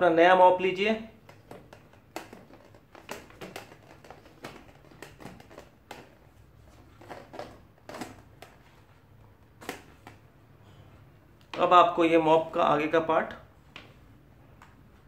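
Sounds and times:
plastic mop handle clicking: 1.2 - 6.2, 7.0 - 8.6.

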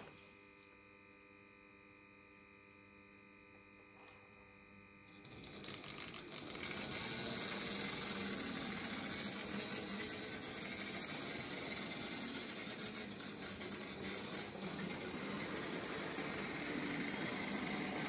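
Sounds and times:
model train wheels clattering on track: 5.3 - 18.0.

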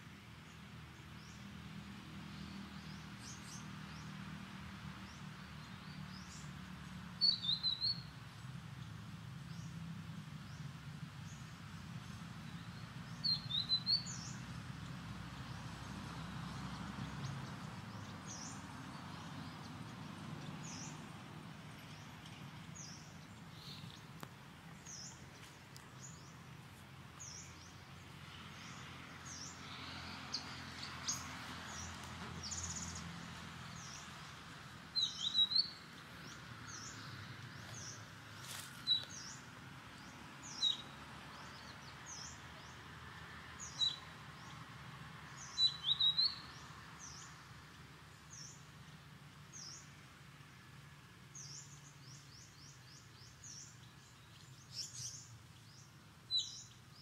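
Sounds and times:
bird chirping: 7.2 - 8.1, 12.0 - 14.4, 21.8 - 26.6, 34.9 - 39.4, 40.0 - 42.8, 43.6 - 44.6, 45.3 - 47.3, 51.4 - 57.0.

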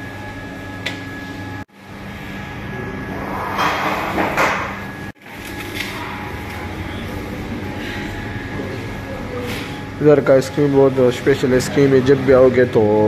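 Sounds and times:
shop machinery hum: 0.0 - 13.0
rush of noise: 2.6 - 4.6.

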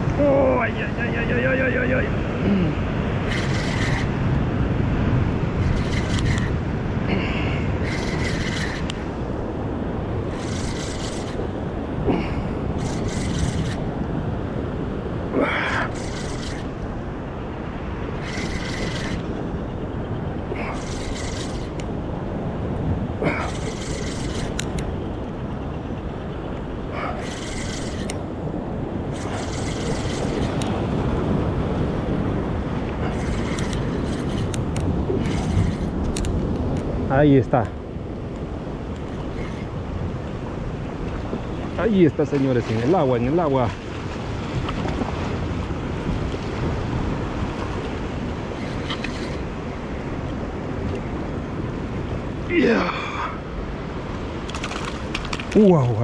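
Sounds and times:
surf on rocks: 0.0 - 56.0
wind: 0.0 - 56.0
fishing reel whirring: 3.2 - 4.2, 5.5 - 6.6, 7.7 - 9.3, 10.2 - 11.6, 12.7 - 14.0, 15.7 - 16.9, 18.1 - 19.6, 20.6 - 21.9, 23.2 - 25.0, 27.0 - 28.4, 29.1 - 30.8, 33.0 - 36.5, 38.8 - 40.0, 47.5 - 50.0, 54.4 - 55.6.

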